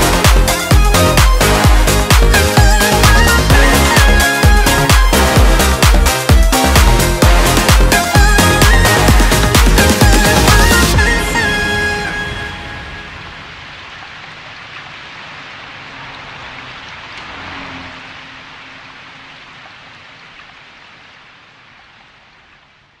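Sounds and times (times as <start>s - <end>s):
rain-like hiss: 11.4s - 23.0s.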